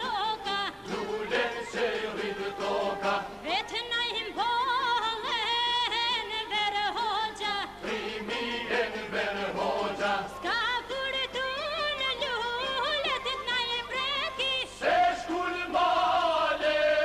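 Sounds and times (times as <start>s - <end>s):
men's group singing folk song: 0.0s - 4.6s, 6.9s - 11.4s, 14.6s - 17.0s.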